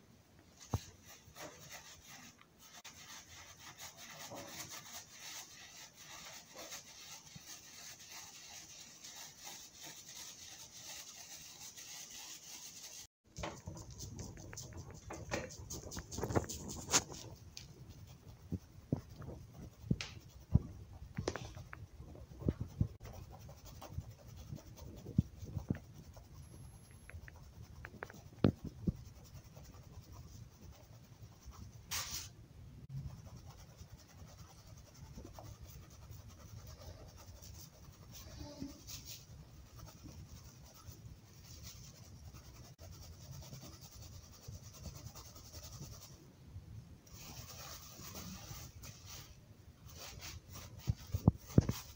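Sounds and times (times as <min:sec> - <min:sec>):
powder scraping and rubbing: 0:00.6 - 0:32.3, 0:47.1 - 0:51.9.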